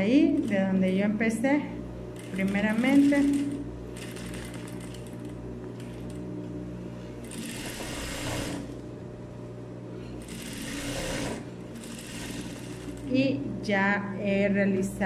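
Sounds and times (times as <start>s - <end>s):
sewing machine stitching: 2.2s - 6.2s, 7.2s - 8.8s, 10.2s - 13.2s.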